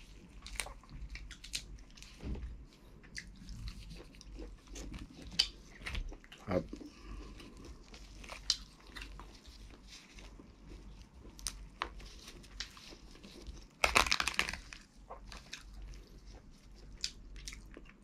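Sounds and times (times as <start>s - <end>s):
crab shell cracking: 13.8s - 14.8s.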